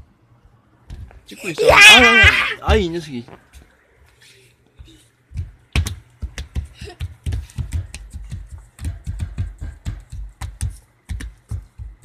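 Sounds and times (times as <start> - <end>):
feet stamping on wooden floor: 0.9 - 3.1, 4.8 - 12.0.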